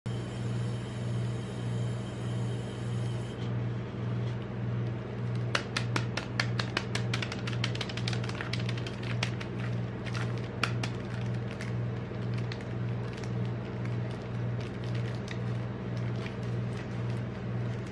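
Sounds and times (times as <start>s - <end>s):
machine cold plate humming: 0.1s - 17.9s
plastic wrapper crinkling: 5.0s - 17.9s.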